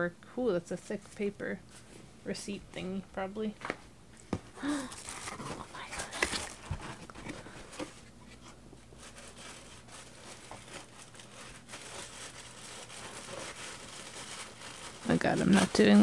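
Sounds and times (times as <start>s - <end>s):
tissue paper rustling and crinkling: 4.6s - 16.0s.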